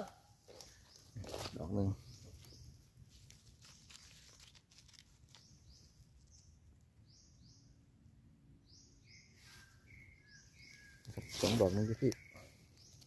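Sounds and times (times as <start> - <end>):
rustles in leaf litter: 0.6 - 6.1, 10.6 - 12.2
faint high chirp: 8.6 - 13.0.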